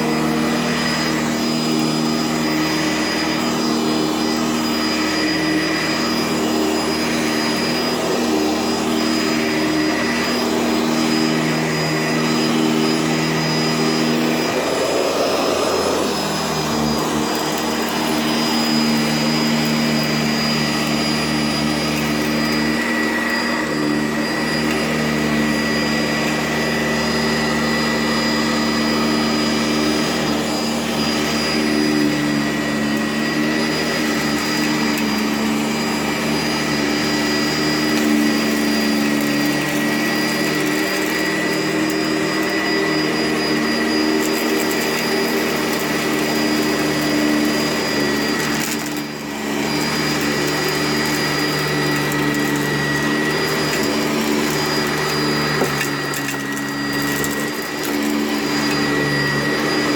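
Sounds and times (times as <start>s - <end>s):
upright vacuum whining: 0.0s - 59.9s.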